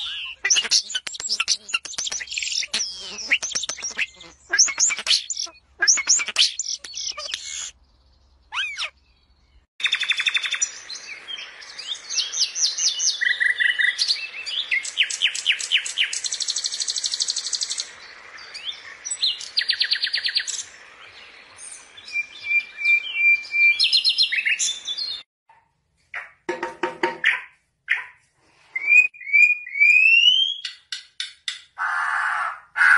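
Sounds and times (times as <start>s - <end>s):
starling whistled calls: 0.0s - 7.8s, 8.5s - 9.0s
songbird trilling song: 0.0s - 25.2s.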